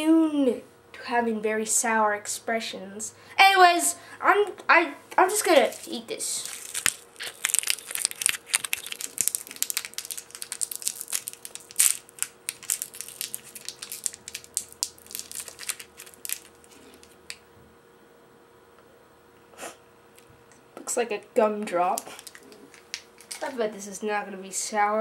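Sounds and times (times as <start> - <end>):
candy wrapper crinkling: 5.3 - 17.4, 21.8 - 23.6.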